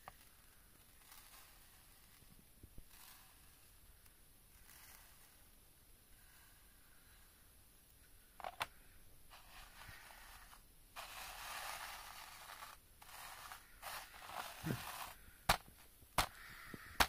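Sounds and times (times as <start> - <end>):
fingers scraping crumbs on plastic: 9.4 - 15.6.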